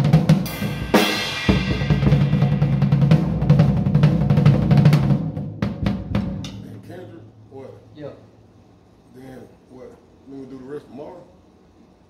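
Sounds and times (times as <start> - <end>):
acoustic drum kit playing: 0.0 - 7.9
cymbal crash: 0.4 - 3.5.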